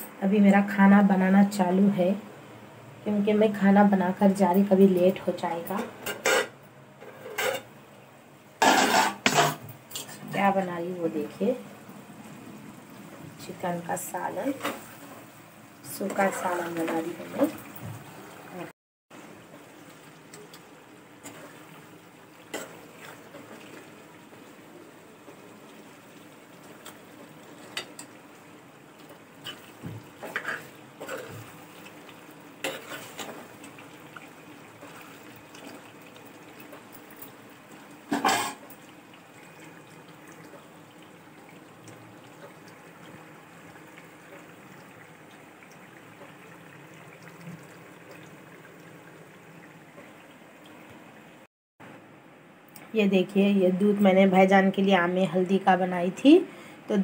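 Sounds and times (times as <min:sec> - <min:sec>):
pot simmering: 0:04.9 - 0:51.5
ladle scraping and knocking pot: 0:08.6 - 0:10.2.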